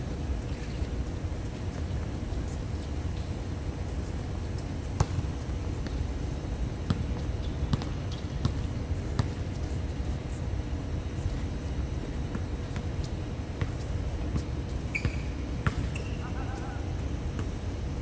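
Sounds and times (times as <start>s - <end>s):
basketball bouncing on a court: 4.5s - 6.2s, 6.8s - 9.7s, 12.3s - 17.6s.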